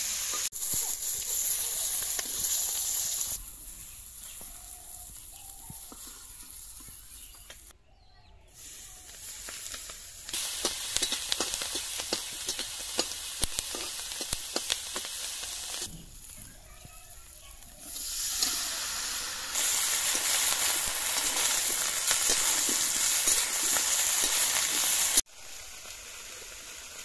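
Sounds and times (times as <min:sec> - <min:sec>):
fish frying in sizzling oil: 0:00.0 - 0:07.0, 0:08.6 - 0:27.0
onions frying with sharp pops: 0:00.0 - 0:07.8, 0:08.6 - 0:27.0
steel spatula stirring: 0:10.6 - 0:15.1, 0:19.5 - 0:25.2.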